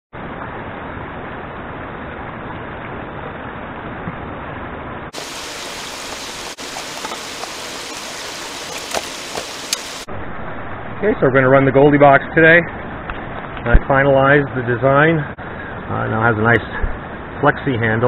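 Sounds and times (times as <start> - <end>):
creek water rushing: 5.1 - 10.1.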